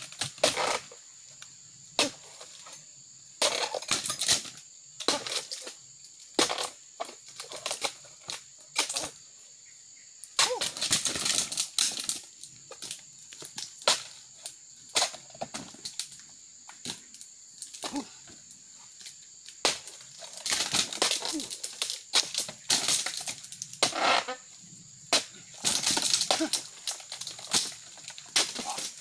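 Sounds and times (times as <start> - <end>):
palm fronds rustling: 10.5 - 29.0.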